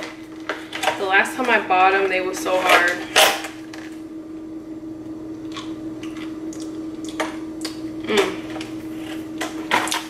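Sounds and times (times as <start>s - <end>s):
steady low hum: 0.0s - 10.0s
cookie crunching: 5.4s - 10.0s.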